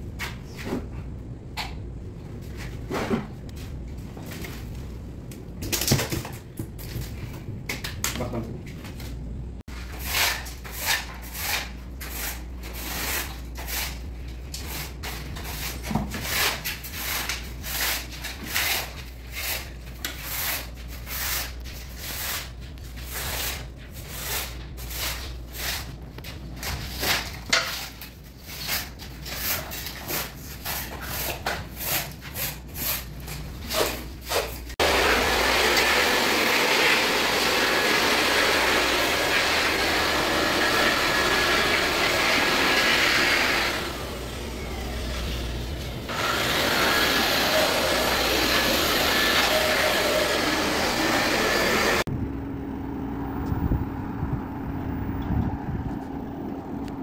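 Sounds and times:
electric hand blower running: 34.8 - 52.1.

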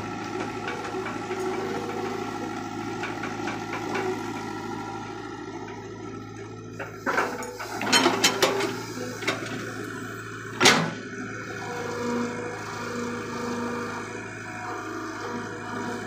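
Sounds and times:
excavator diesel engine running: 0.0 - 16.0
knocks and clatters: 3.0 - 4.2.

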